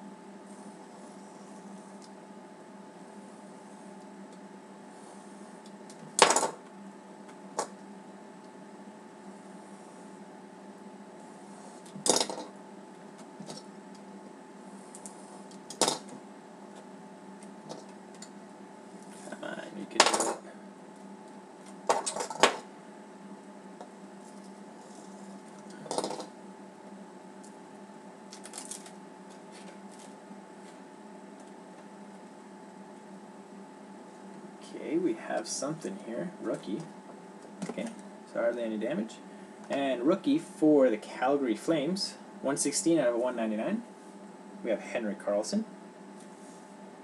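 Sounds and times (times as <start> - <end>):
steady low hum: 0.0 - 47.0
trading cards handled on a table: 28.3 - 30.8.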